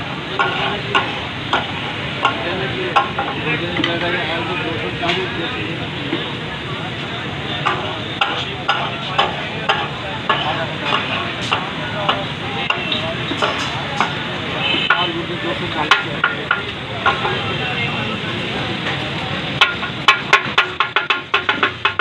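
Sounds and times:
steel clinking on griddle: 0.2 - 4.2, 7.6 - 17.8, 18.8 - 22.0.

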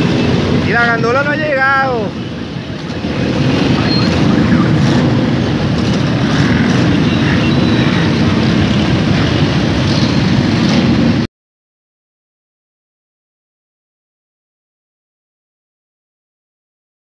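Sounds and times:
many motorcycle engines running: 0.0 - 11.3.

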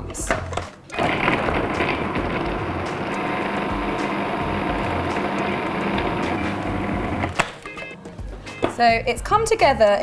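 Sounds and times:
food processor motor running: 0.9 - 7.4.

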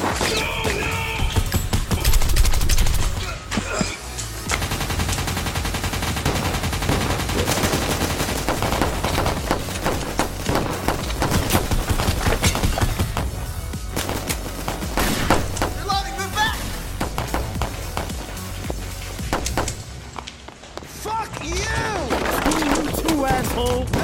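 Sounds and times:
rapid gunfire: 0.0 - 3.2, 4.4 - 20.0, 22.1 - 24.0
music with steady bass: 8.6 - 19.8.

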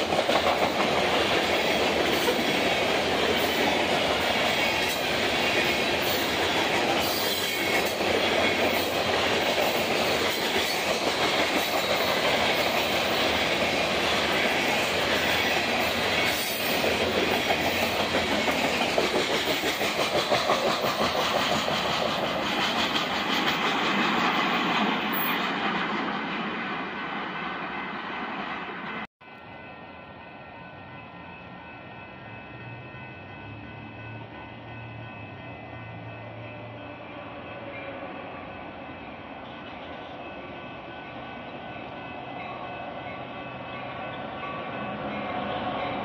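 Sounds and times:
train wheels clacking on rails: 0.0 - 29.1
train rolling rumble: 0.0 - 36.8.

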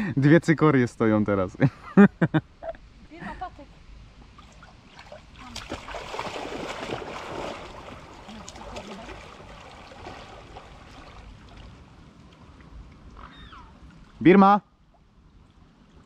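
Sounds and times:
water splashing and churning: 4.3 - 14.2.

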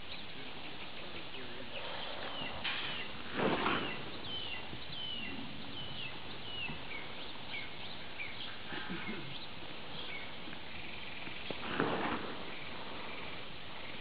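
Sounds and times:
outdoor background noise: 0.0 - 14.0
songbird whistling: 3.7 - 11.0.

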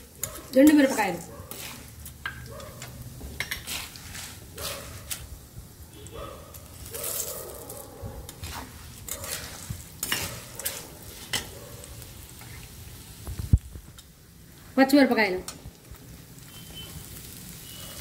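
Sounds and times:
oil sizzling: 0.0 - 18.0
metal spatula scraping a pan: 0.2 - 5.3, 8.3 - 11.6.

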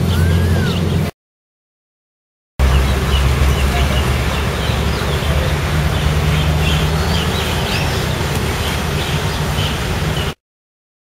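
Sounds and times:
high chirping animal calls: 0.0 - 1.1, 2.6 - 10.4
steady low rumble: 2.6 - 10.2.

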